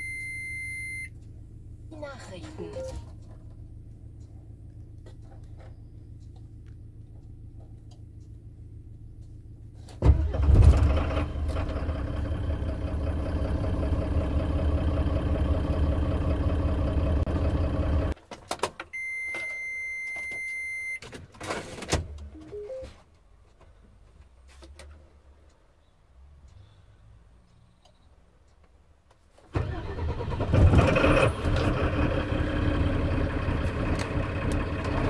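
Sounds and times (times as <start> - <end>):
diesel engine starting and idling: 0.0 - 18.2, 29.4 - 35.0.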